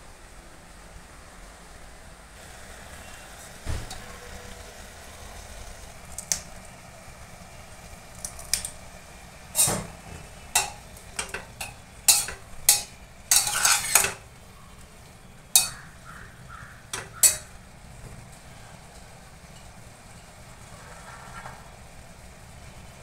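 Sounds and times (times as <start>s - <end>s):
metal spatula scraping a pot: 9.6s - 14.2s, 15.6s - 16.0s, 16.8s - 17.5s.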